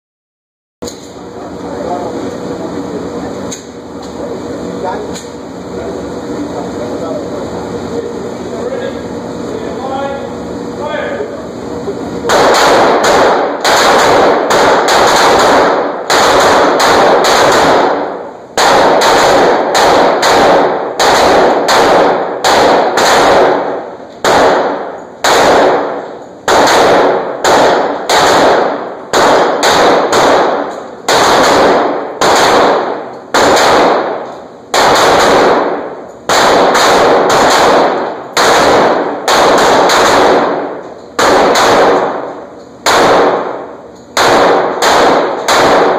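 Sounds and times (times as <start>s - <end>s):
pistol shots ringing on steel: 12.3s - 45.9s.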